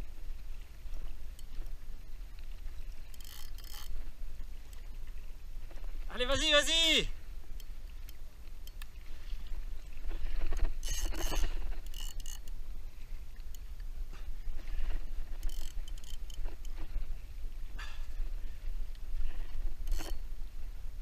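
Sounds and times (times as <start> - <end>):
water sloshing against kayak hull: 0.0 - 6.5, 7.2 - 20.9
spinning reel winding: 3.1 - 4.0, 10.8 - 12.5, 15.4 - 16.8, 19.9 - 20.2.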